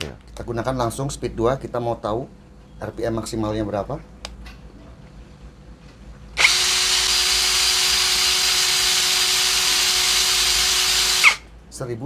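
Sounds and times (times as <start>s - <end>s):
cordless drill whining: 6.4s - 11.4s.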